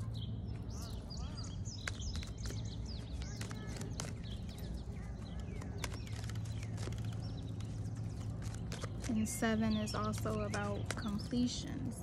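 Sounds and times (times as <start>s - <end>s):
bird chirping: 0.0s - 12.0s
cards being shuffled: 1.7s - 4.5s, 5.2s - 11.3s.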